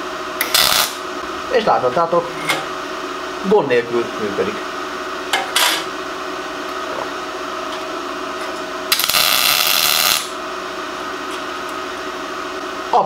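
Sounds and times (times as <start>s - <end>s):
steady machine hum: 0.0s - 13.0s
welding arc crackling: 0.4s - 1.2s, 8.9s - 10.4s.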